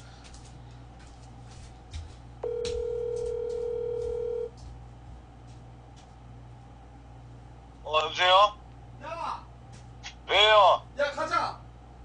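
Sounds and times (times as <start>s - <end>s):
telephone ringback tone: 2.4s - 4.5s.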